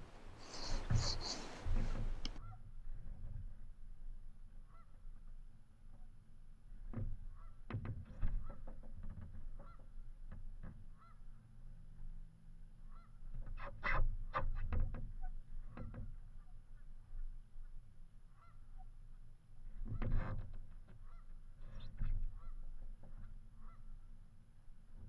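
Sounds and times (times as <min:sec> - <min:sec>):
geese honking: 0:00.4 - 0:02.6, 0:18.3 - 0:18.8.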